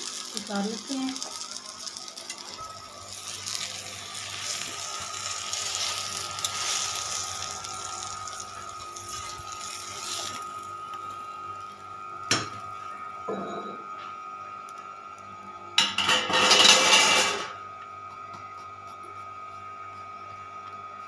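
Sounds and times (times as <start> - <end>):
flatbread sizzling in oil: 0.0 - 13.2.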